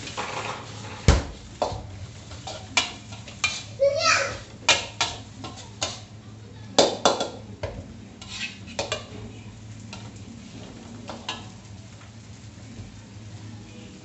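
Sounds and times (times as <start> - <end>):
metal spatula scraping a wok: 0.0 - 1.1, 2.2 - 3.9, 4.7 - 6.1, 8.2 - 9.2.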